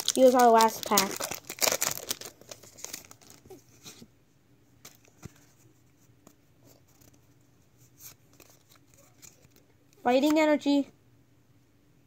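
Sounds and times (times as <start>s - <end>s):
trading cards clicking and rustling: 0.0s - 3.6s.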